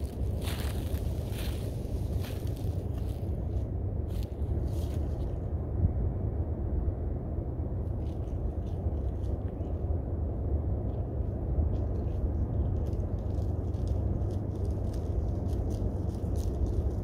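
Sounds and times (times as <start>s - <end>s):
wind buffeting microphone: 0.0s - 17.0s
faint ticks and scratches: 7.9s - 9.9s, 10.8s - 17.0s.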